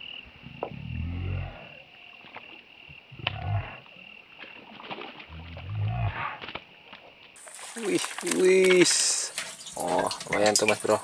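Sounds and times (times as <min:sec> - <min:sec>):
high insect drone: 0:00.0 - 0:11.0
low drawn-out grunting calls: 0:03.1 - 0:03.9, 0:05.3 - 0:06.4
fish splashing at water surface: 0:04.4 - 0:05.4, 0:06.4 - 0:11.0.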